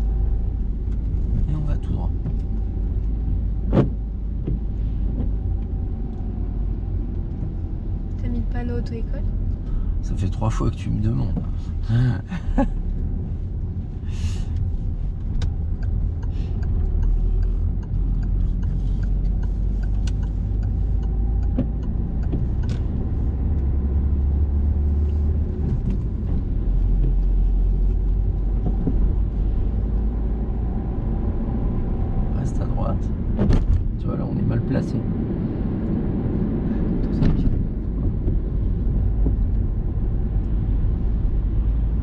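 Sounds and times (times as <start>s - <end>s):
car engine and road rumble: 0.0s - 42.0s.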